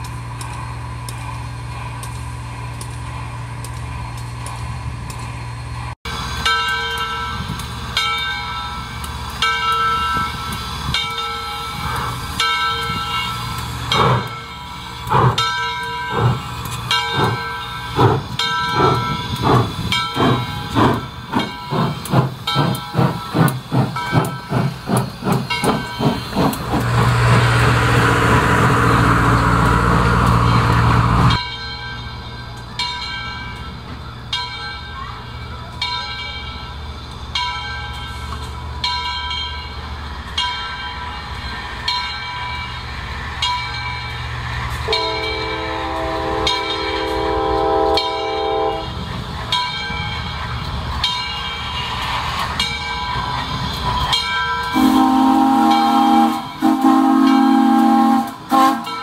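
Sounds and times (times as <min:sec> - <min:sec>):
loud hiss of steam: 0:06.1 - 0:31.4
locomotive bell ringing: 0:06.3 - 0:59.0
steam whistle blowing: 0:45.0 - 0:48.9, 0:54.7 - 0:59.0.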